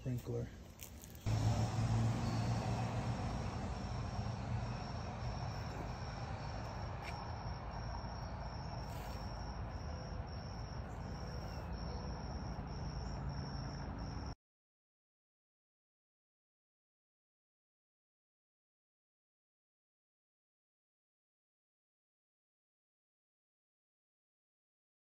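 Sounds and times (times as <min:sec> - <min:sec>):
low hum and hiss: 0:00.0 - 0:14.3
cricket chirping: 0:00.6 - 0:14.4.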